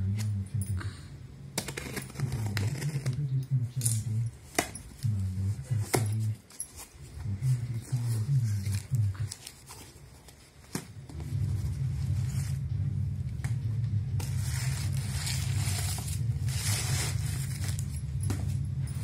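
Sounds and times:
low steady hum: 0:00.0 - 0:19.0
crinkling paper: 0:05.0 - 0:11.0.

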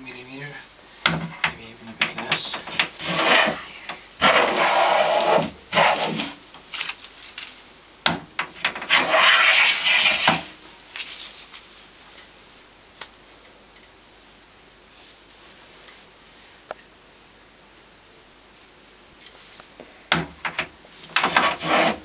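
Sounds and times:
hand plane shaving wood: 0:02.1 - 0:06.4, 0:08.9 - 0:10.5, 0:21.1 - 0:22.0.

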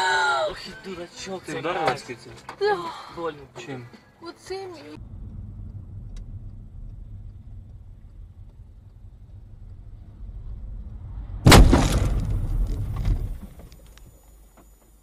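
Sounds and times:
car driving on wet road: 0:04.9 - 0:13.7.

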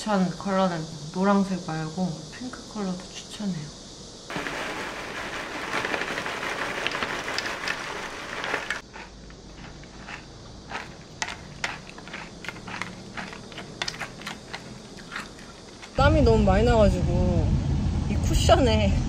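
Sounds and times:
cereal pouring into plastic cup: 0:04.3 - 0:16.0
metal spoon stirring in cup: 0:04.3 - 0:16.0
plastic pouch crinkling: 0:04.3 - 0:16.0.

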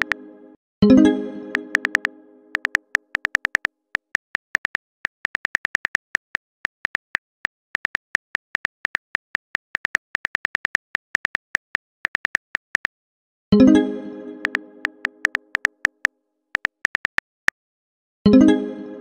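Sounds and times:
phone keyboard typing clicks: 0:01.5 - 0:12.9, 0:14.4 - 0:17.5.

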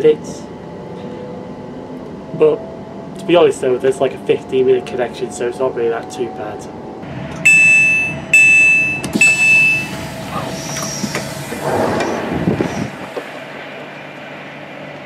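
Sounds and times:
train door alert beeping: 0:07.3 - 0:11.3
rush of noise: 0:09.7 - 0:14.7.

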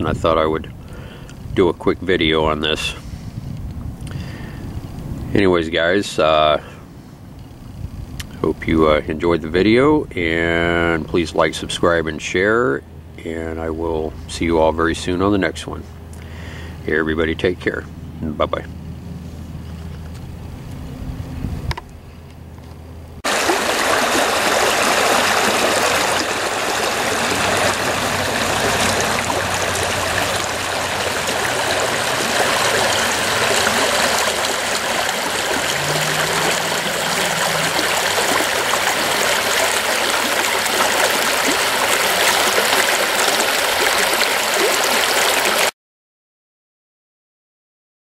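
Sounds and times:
creek rushing over stones: 0:23.2 - 0:45.7.

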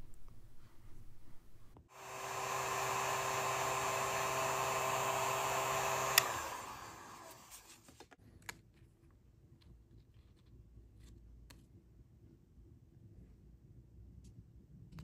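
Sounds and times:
fan winding down: 0:01.9 - 0:07.7
heat gun blowing: 0:01.9 - 0:07.7
heat gun switch click: 0:05.8 - 0:06.6.

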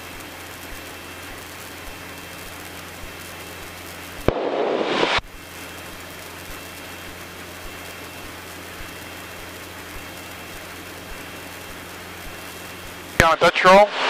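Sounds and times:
airplane engine and propeller droning: 0:00.0 - 0:14.0
short loud hiss: 0:04.3 - 0:05.3.

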